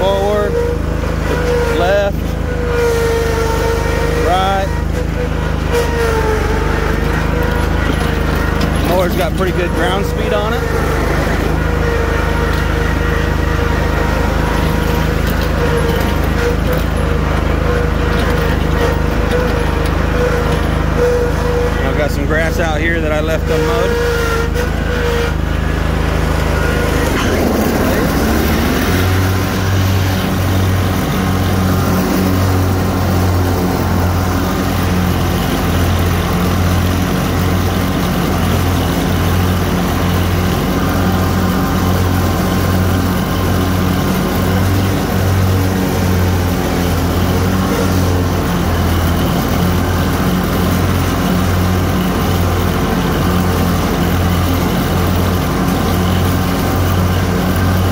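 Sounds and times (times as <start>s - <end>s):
lawn mower engine running: 0.0s - 57.9s.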